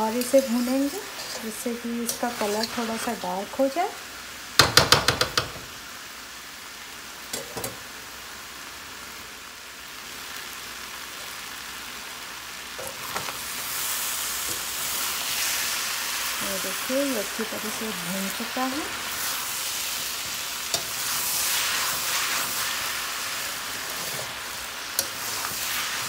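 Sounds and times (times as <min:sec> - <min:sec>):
vegetables sizzling in a wok: 0:00.0 - 0:26.0.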